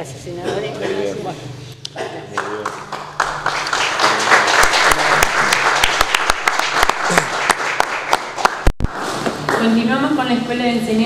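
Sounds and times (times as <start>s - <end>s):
audience applauding: 2.4s - 9.6s.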